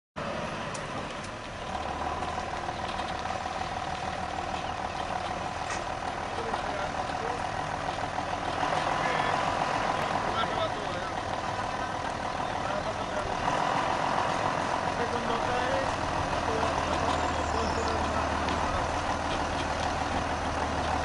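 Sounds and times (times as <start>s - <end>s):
tractor engine running: 0.2s - 21.0s.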